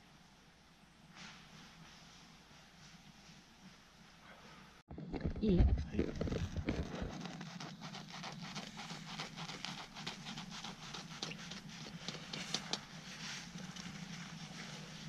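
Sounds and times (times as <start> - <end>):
knife sawing through crunchy crust: 6.6 - 12.7.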